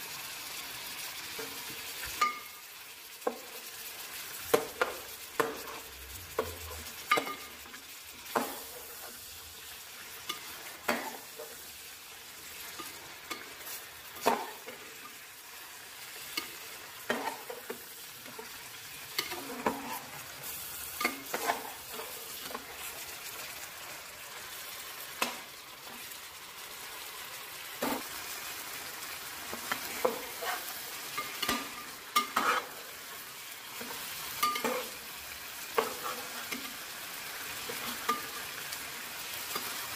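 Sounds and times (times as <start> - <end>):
meat frying in oil: 0.0 - 39.9
metal spoon scraping a pot: 19.1 - 22.8, 29.7 - 32.8.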